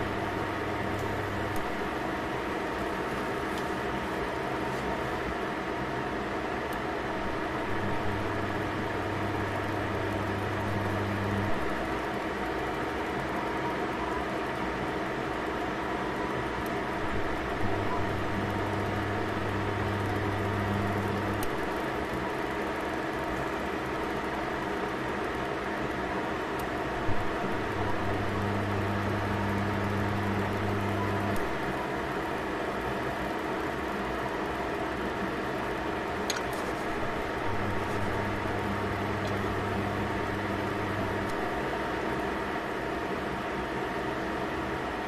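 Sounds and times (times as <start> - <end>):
low hum: 36.8 - 41.6.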